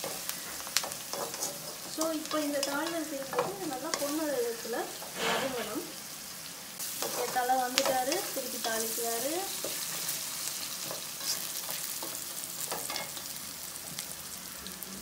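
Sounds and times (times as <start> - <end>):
onions sizzling in hot oil: 0.0 - 15.0
spatula scraping pan: 4.8 - 6.0.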